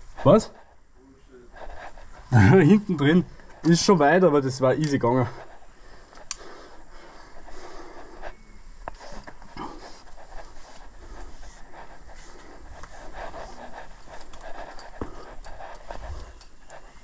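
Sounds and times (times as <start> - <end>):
rustling: 5.2 - 17.0
person breathing hard: 5.4 - 17.0.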